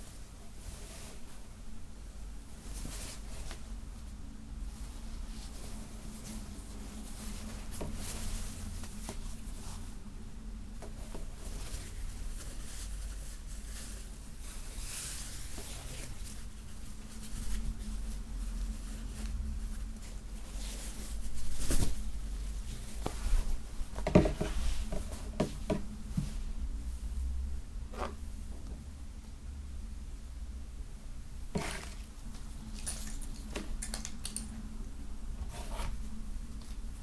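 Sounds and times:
steady low hum: 0.0 - 33.8
fabric flag rustling: 10.8 - 26.6.

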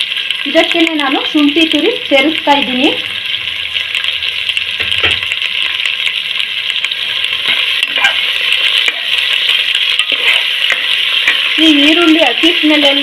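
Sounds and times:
vegetables sizzling in oil: 0.0 - 13.0
spatula scraping pan: 7.4 - 12.5.

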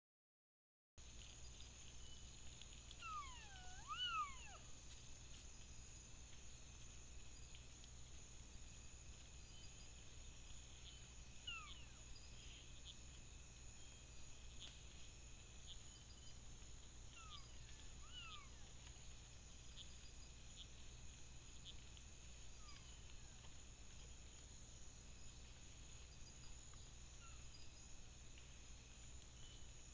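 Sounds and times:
night insects chorus: 1.0 - 29.9
tapirs whistling: 3.0 - 4.6.

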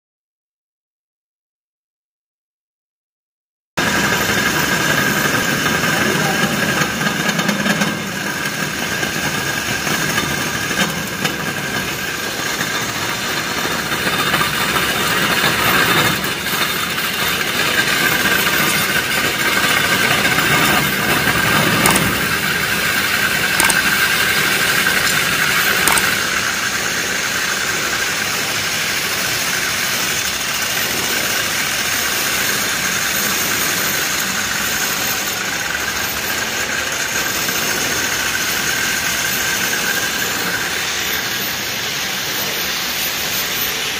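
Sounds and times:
core drill motor whine: 4.0 - 43.9
drill bit grinding concrete: 8.3 - 27.2.

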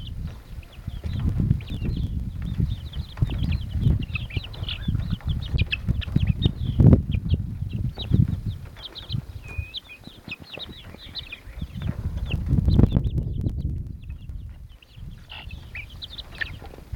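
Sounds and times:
deep rumbling noise: 0.0 - 9.7, 11.0 - 16.9
chicks peeping: 0.0 - 16.9.

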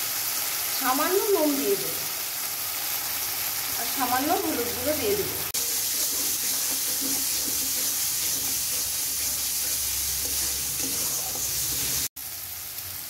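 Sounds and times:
spice paste sizzling in oil: 0.0 - 13.0
spatula stirring in metal pan: 5.5 - 12.1.

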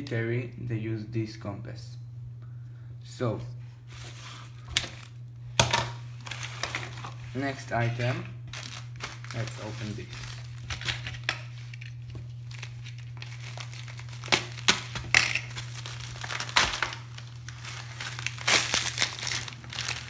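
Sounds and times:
plastic mailer bag crinkling: 4.6 - 5.2, 6.1 - 20.0
plastic bag ripping: 6.2 - 20.0.

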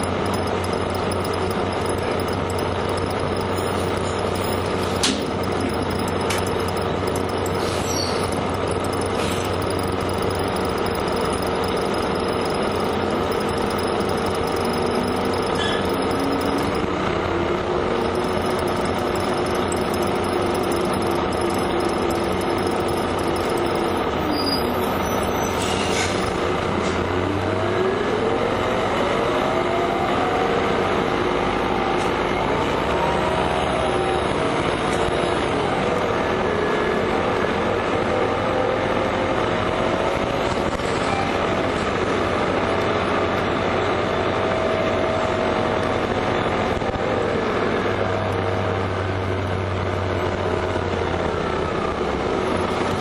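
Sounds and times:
bus engine whine: 6.3 - 9.4, 15.0 - 18.0, 23.9 - 53.0.

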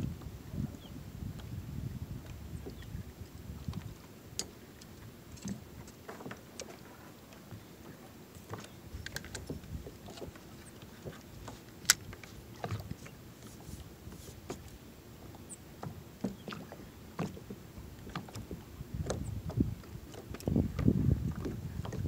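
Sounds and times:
fishing gear clicks and knocks: 8.4 - 13.6.

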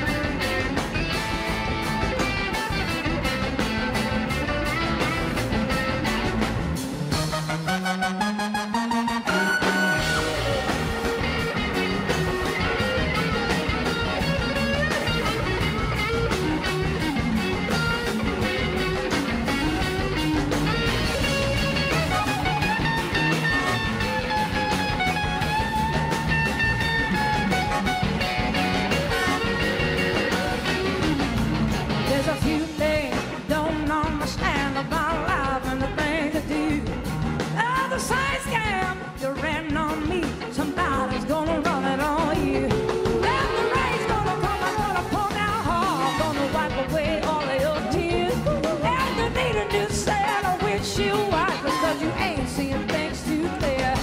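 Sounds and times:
blues-rock band playing: 0.0 - 54.0
electric guitar lead: 0.0 - 54.0
woman singing: 32.1 - 37.0, 37.6 - 54.0.

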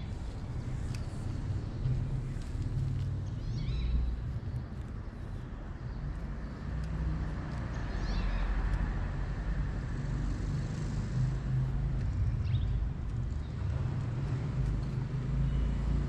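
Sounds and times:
motor vehicle engine rumble: 0.0 - 5.7.

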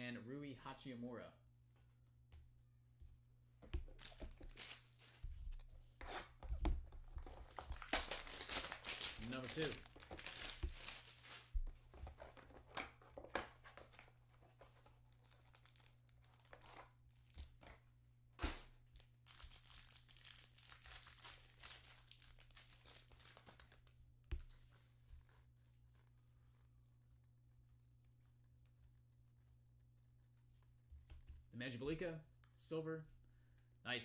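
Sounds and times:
cards rustling: 3.7 - 17.8, 18.5 - 26.2
wrapper crinkling and tearing: 4.0 - 4.9, 7.2 - 11.5, 15.1 - 16.9, 19.0 - 23.8.

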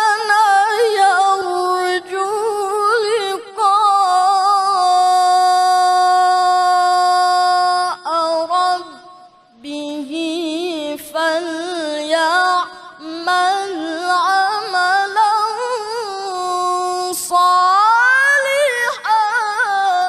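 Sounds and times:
man reciting melodically: 10.2 - 20.0.

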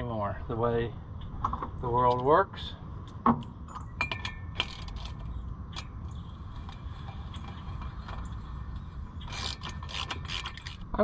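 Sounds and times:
ratchet wrench clicking: 4.6 - 5.9, 9.2 - 10.8.

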